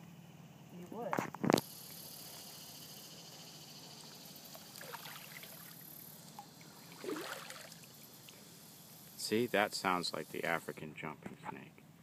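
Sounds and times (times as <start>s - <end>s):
high insect drone: 0.6s - 11.1s
water trickling and dripping: 4.2s - 8.4s.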